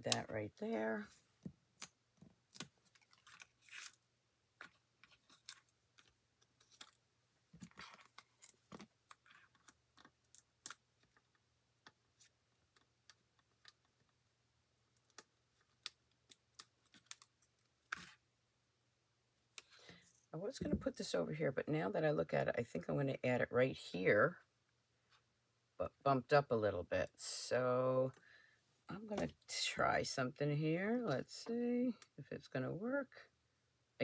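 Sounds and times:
paper rustling: 0:02.5 - 0:04.0.

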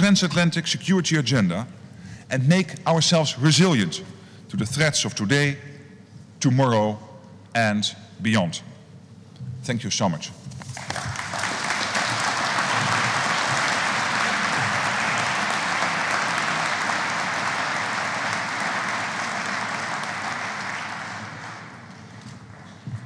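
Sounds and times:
audience applauding: 0:10.7 - 0:22.8.

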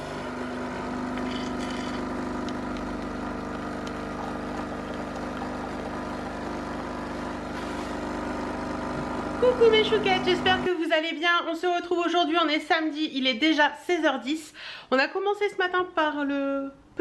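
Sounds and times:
coffee pouring into mug: 0:00.0 - 0:09.4
coffee machine pump humming: 0:00.0 - 0:10.8.

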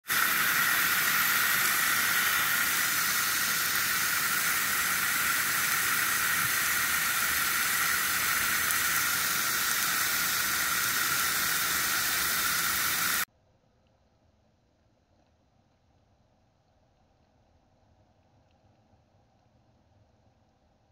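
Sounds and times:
hose water spraying on a car: 0:00.0 - 0:13.3.

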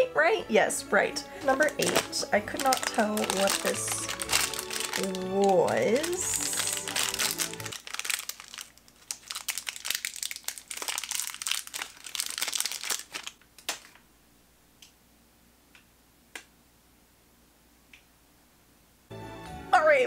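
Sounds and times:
foil wrapper crinkling and tearing: 0:01.5 - 0:14.0.

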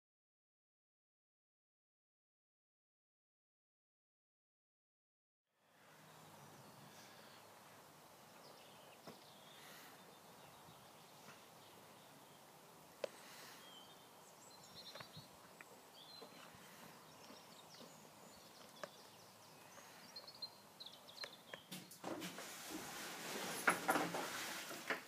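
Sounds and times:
small birds chirping: 0:05.7 - 0:22.0
loud rustling: 0:21.7 - 0:25.0.

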